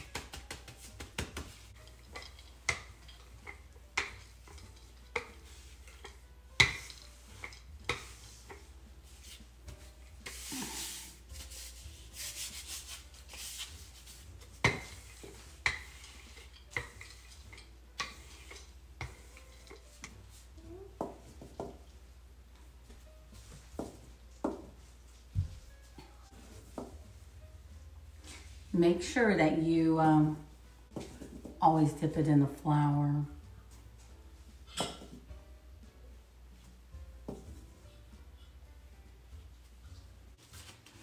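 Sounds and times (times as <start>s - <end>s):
rolling pin rubbing swish: 6.8s - 20.5s.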